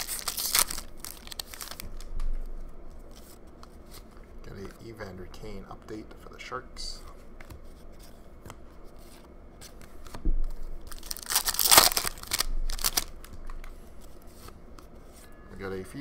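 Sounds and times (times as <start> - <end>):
wrapper tearing open: 0.0 - 2.1, 10.8 - 13.3.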